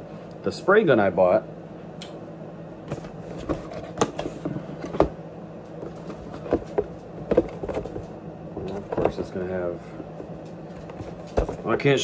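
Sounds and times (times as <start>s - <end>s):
steady low hum: 0.0s - 12.0s
object handling knocks and clicks: 2.9s - 5.2s, 5.8s - 9.4s, 10.2s - 11.7s.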